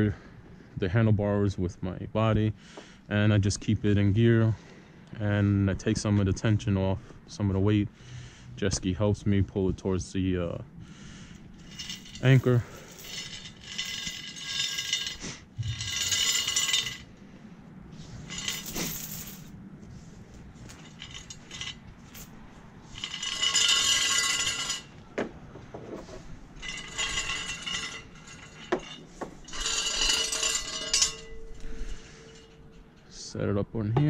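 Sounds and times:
anchor chain clinking and rattling: 0:11.3 - 0:17.1, 0:18.2 - 0:19.6, 0:20.6 - 0:33.1.

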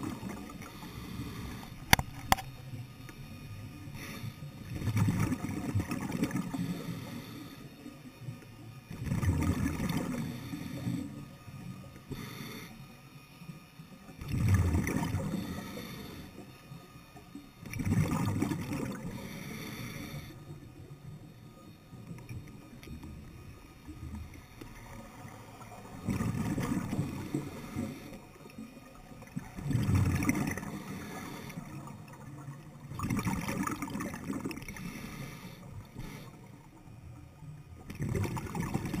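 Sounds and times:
exhaled bubbles underwater: 0:00.0 - 0:02.1, 0:04.6 - 0:07.2, 0:08.9 - 0:11.9, 0:14.0 - 0:16.4, 0:17.6 - 0:21.3, 0:21.9 - 0:39.0.

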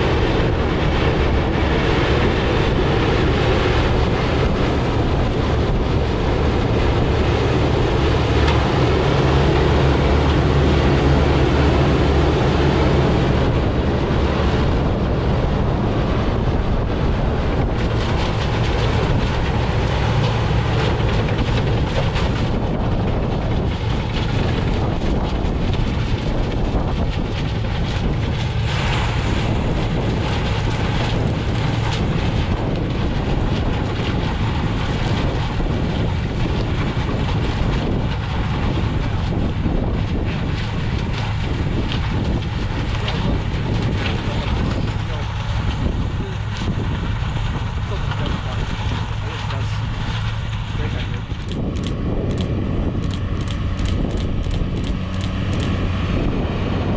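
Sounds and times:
heavy engine running: 0:00.0 - 0:56.9
wind buffeting microphone: 0:00.0 - 0:56.9.

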